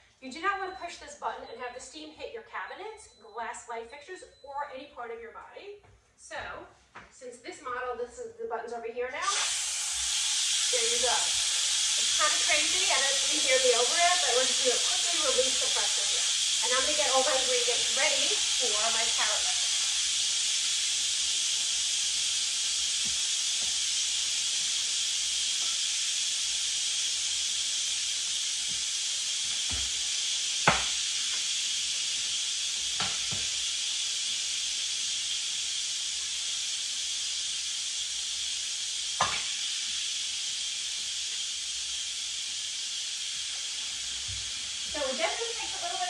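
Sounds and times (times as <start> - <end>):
pressure cooker steam hissing: 9.1 - 46.0
sharp knocks: 30.7 - 30.9.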